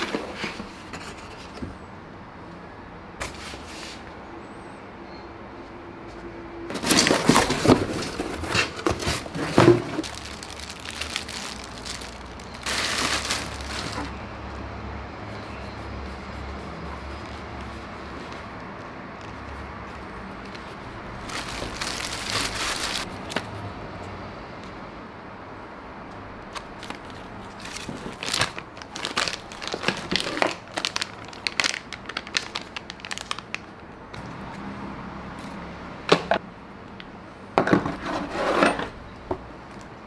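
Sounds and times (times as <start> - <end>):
plastic wrapping crinkling: 6.7 - 14.2, 20.0 - 23.1, 26.5 - 33.7.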